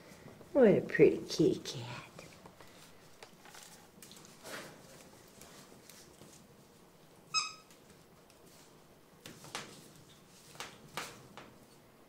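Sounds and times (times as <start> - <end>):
high-pitched animal call: 7.3 - 7.7.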